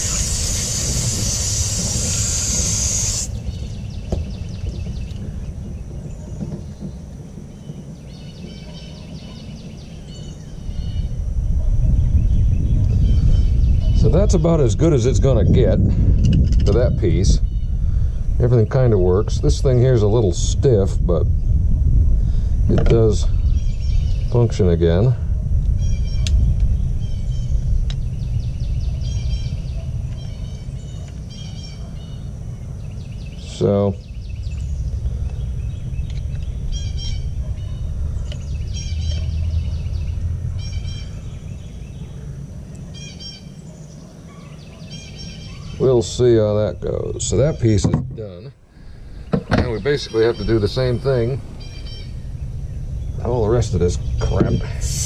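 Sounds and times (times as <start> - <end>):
hose nozzle spraying water: 0.0 - 3.4
birds chirping: 0.0 - 15.8, 16.7 - 20.4, 22.3 - 55.0
songbird singing: 0.0 - 22.0, 22.7 - 55.0
low outdoor rumble: 0.0 - 44.4, 45.2 - 55.0
low rumble: 17.2 - 29.6.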